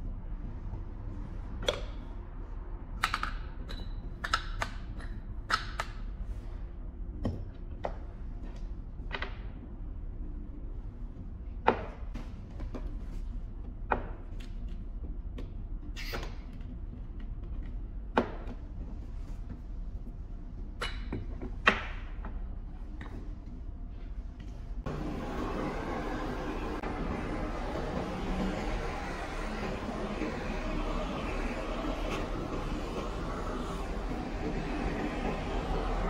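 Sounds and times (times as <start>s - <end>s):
steady low hum: 16.6s - 36.0s.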